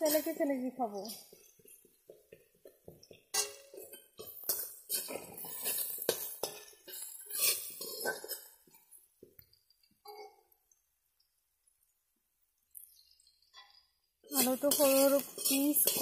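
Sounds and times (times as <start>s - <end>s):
metal spatula scraping a pan: 0.0s - 2.4s, 3.0s - 8.7s, 13.6s - 16.0s
potatoes frying in oil: 0.0s - 9.6s, 12.7s - 16.0s.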